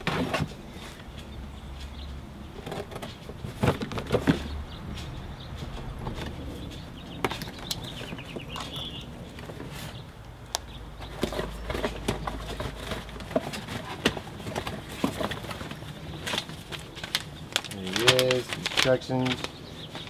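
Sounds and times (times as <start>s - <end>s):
rummaging in cardboard box: 11.0s - 20.0s.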